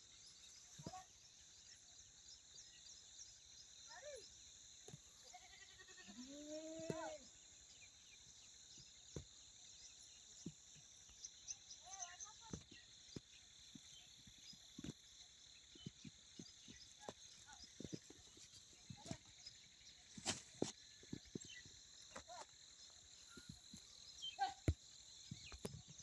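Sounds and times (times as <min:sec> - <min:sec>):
goat bleating: 0:05.3 - 0:06.4.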